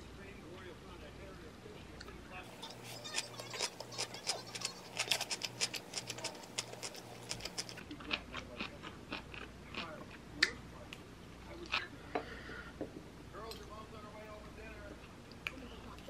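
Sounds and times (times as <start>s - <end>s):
crisp crunches of chewing: 2.5s - 10.0s.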